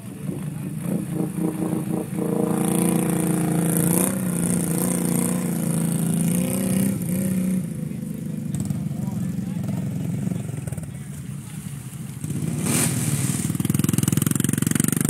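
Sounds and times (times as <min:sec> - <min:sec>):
atv engine revving: 0:00.0 - 0:15.0
water spraying: 0:11.4 - 0:14.2.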